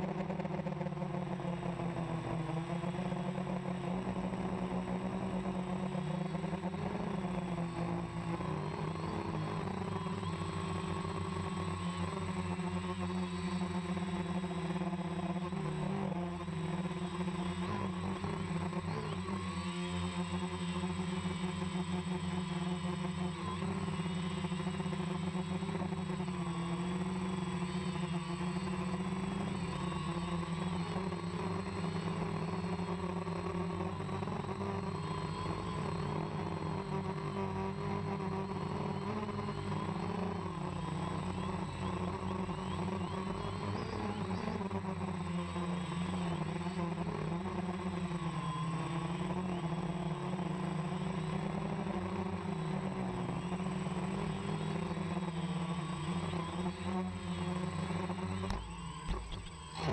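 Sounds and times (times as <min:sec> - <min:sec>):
drone motors and propellers humming: 0:00.0 - 0:59.9
thin high whine: 0:00.9 - 0:59.9.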